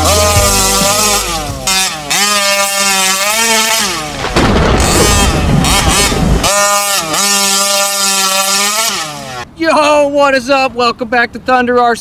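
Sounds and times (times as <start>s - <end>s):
two-stroke engine revving: 0.0s - 9.5s
rough noisy rumble: 4.0s - 8.5s.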